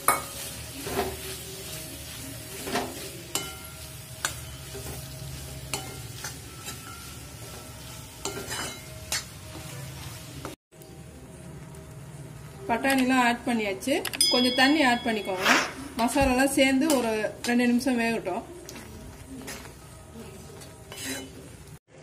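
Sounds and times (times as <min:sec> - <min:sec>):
frying sizzle: 0:00.0 - 0:21.8
spoon scraping metal pan: 0:02.6 - 0:09.3, 0:20.5 - 0:21.7.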